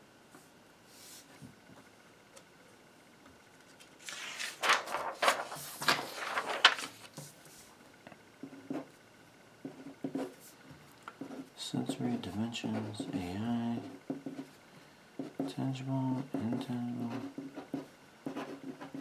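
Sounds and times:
paper sliding across desk: 0.9s - 1.5s, 4.0s - 7.7s
paper rustling: 3.7s - 7.7s.

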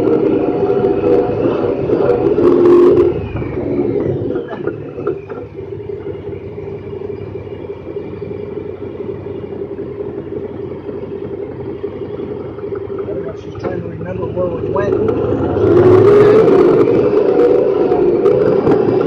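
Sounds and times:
vehicle engine cruising: 0.0s - 19.0s.

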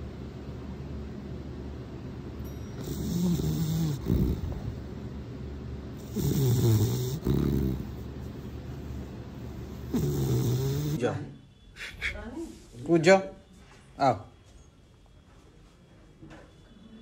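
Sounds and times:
dog snoring: 2.8s - 4.9s, 5.9s - 11.2s.

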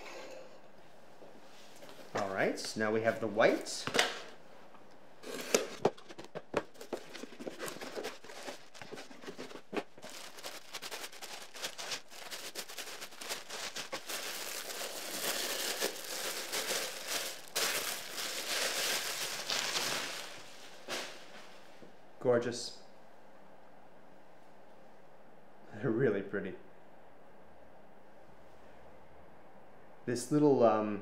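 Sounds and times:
packing paper rustling: 5.2s - 21.5s.

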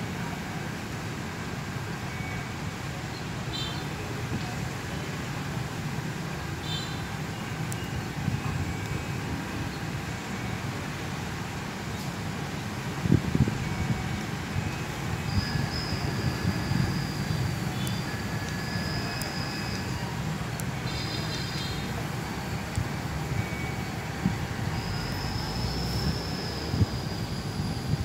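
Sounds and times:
locomotive engine rumbling: 5.8s - 28.0s.

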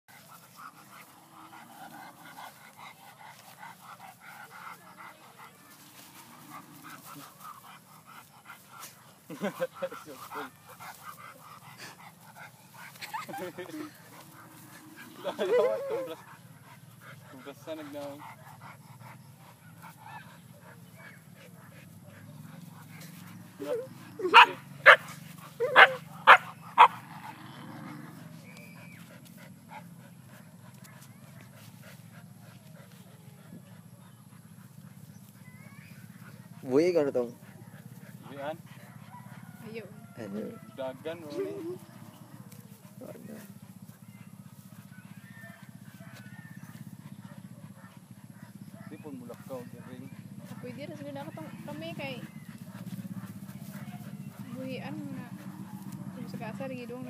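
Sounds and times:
dog whining and panting: 6.5s - 27.2s, 28.1s - 39.8s, 40.4s - 45.8s
dog barking: 23.6s - 27.0s, 44.9s - 51.6s.

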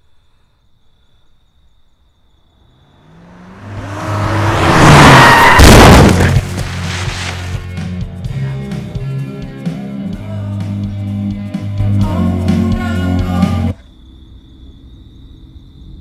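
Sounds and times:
car approaching: 2.8s - 8.0s
music: 6.2s - 13.8s.

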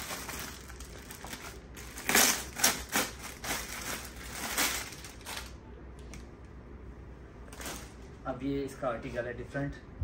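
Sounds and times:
packaging rustling and crinkling: 0.0s - 5.6s, 7.5s - 8.0s.

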